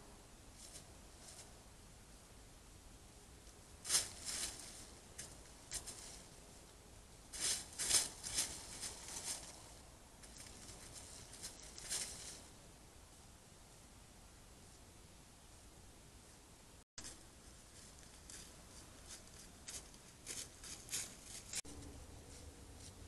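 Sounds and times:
hooves crunching dry leaves: 3.8 - 6.4, 7.3 - 12.5, 17.0 - 23.0.

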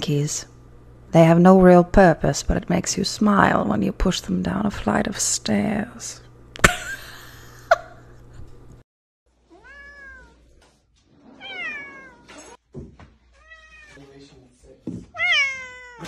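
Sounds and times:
cat meowing: 9.5 - 10.5, 11.4 - 12.6, 13.4 - 14.0, 15.1 - 16.0.

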